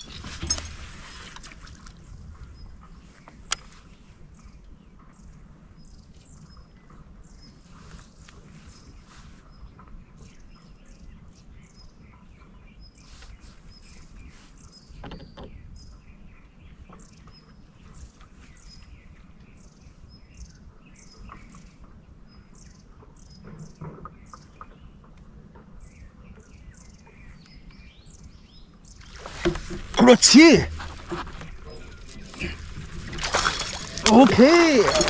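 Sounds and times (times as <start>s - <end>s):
birds chirping: 25.6s - 35.0s.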